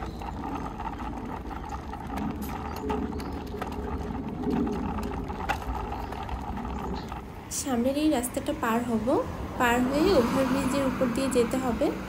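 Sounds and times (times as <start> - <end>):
low rumble of wheels: 0.0 - 12.0.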